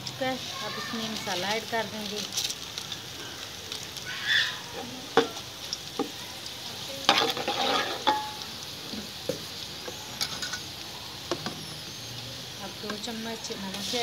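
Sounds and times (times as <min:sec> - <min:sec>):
onions sizzling in oil: 0:00.0 - 0:14.0
metal ladle clinking and scraping pot: 0:07.1 - 0:08.4.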